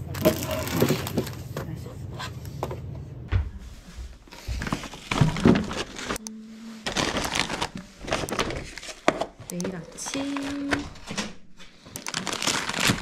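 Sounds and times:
plastic wrappers crinkling: 0:00.0 - 0:01.7, 0:04.3 - 0:13.0.

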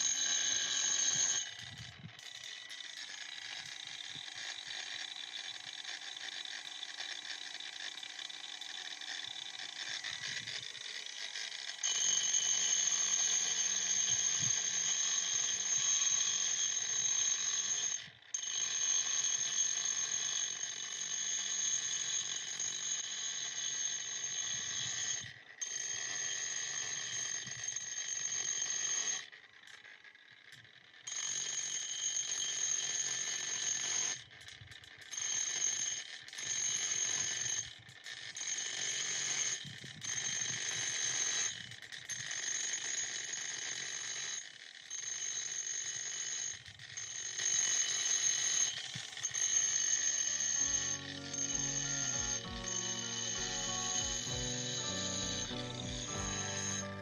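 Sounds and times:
angle grinder sanding slate: 0:49.4 - 0:57.0.

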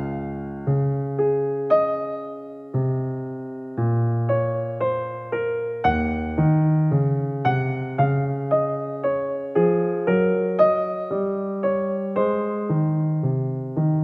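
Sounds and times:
gentle piano music: 0:00.0 - 0:14.0.

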